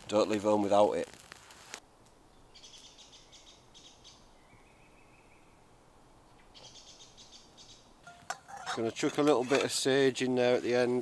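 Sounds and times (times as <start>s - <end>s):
faint bird chirping: 2.2s - 5.7s, 6.3s - 8.3s.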